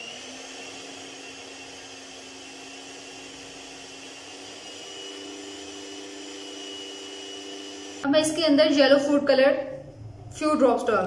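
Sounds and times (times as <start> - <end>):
beaters whisking batter: 0.0 - 8.1
stand mixer motor whine: 0.0 - 8.1.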